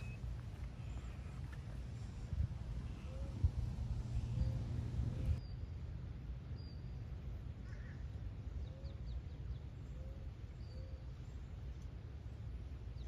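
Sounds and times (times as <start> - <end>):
low arched bird notes: 0.0 - 1.4
steady low rumble: 0.0 - 13.0.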